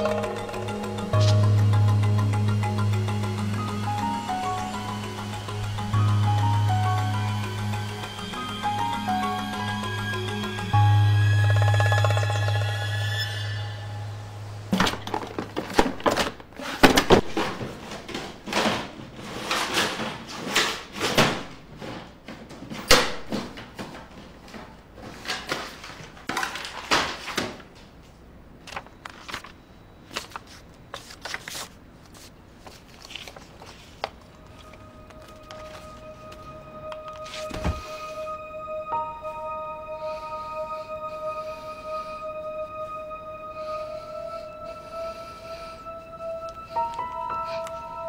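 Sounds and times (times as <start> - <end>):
papers and objects shuffled: 28.6 - 37.9.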